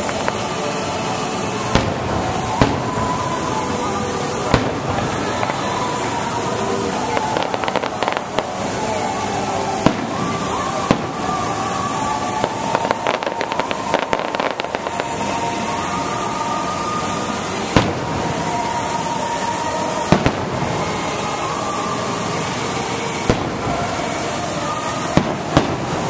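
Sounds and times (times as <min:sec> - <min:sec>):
firework bangs: 0:00.0 - 0:26.0
crackle of firework pops: 0:01.7 - 0:03.0.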